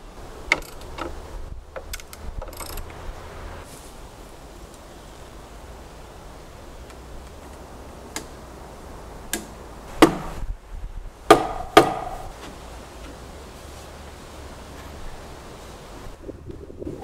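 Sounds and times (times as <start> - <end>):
knocks on timber beams: 9.3 - 10.4, 11.3 - 12.6.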